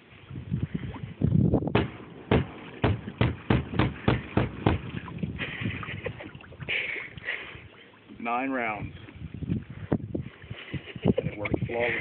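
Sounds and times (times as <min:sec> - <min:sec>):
water splashing: 0:00.0 - 0:12.0
pistol shots underwater: 0:01.6 - 0:05.3.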